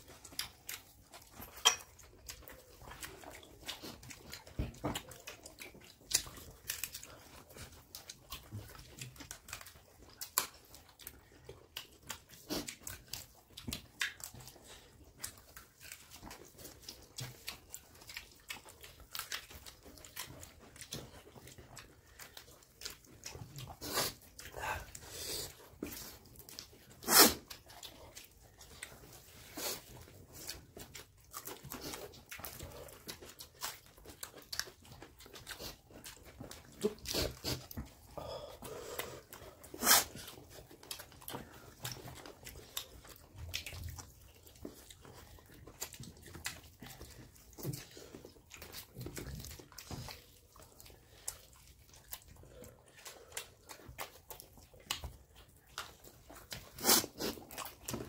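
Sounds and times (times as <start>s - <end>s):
dog: 0.0s - 58.0s.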